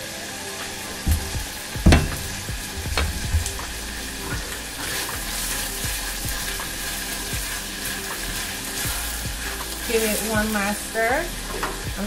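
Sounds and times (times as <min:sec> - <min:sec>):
onions sizzling in oil: 0:00.0 - 0:12.0
spatula knocking against pan: 0:01.1 - 0:03.7.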